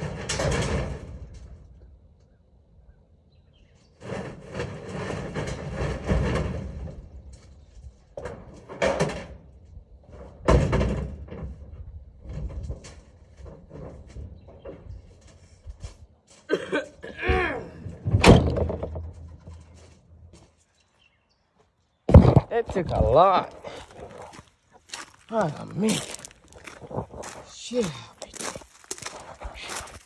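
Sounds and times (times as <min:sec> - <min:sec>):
heavy thuds and knocks: 0:17.3 - 0:20.4, 0:22.1 - 0:24.4.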